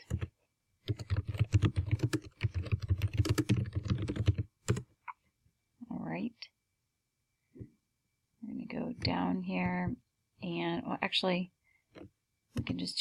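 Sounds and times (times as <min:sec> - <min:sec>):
typing on computer keyboard: 0:00.0 - 0:04.8.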